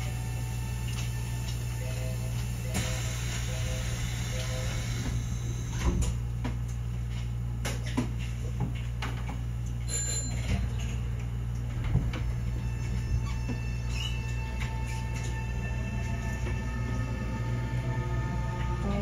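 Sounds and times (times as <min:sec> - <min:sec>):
train interior hum: 0:00.0 - 0:07.3, 0:11.3 - 0:19.0.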